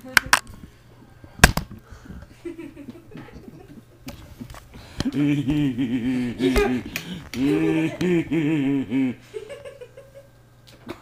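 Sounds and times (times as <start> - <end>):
person speaking: 4.8 - 9.3
faint voices: 5.0 - 9.2.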